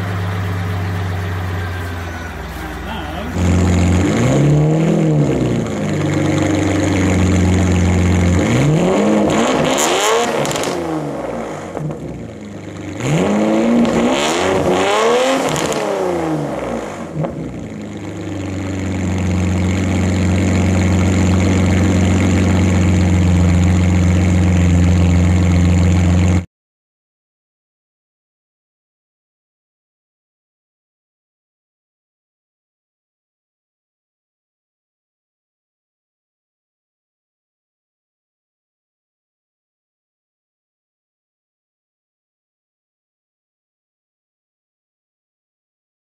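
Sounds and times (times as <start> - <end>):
car engine idling: 0.0 - 9.2, 10.4 - 14.0, 14.8 - 26.4
car engine revving: 0.0 - 26.4.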